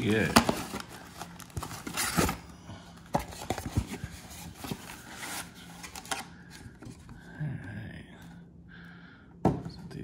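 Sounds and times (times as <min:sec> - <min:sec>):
cardboard rustling and scraping: 0:00.0 - 0:02.5, 0:03.1 - 0:06.2.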